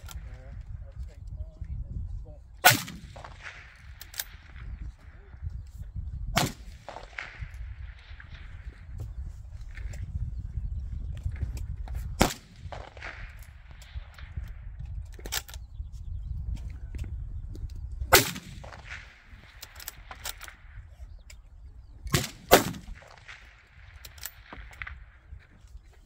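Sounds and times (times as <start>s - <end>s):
rifle bolt clicks: 2.6s - 4.4s, 12.7s - 15.6s, 19.5s - 20.6s, 24.0s - 25.0s
rifle shots: 2.6s - 4.7s, 6.4s - 8.6s, 12.2s - 14.4s, 18.1s - 20.7s, 22.1s - 25.2s.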